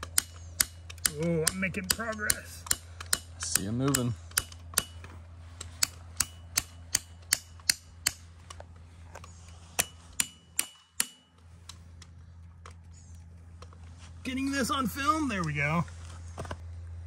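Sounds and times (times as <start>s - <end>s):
hammer striking metal piton: 0.1s - 5.0s, 5.8s - 8.3s, 9.8s - 11.4s.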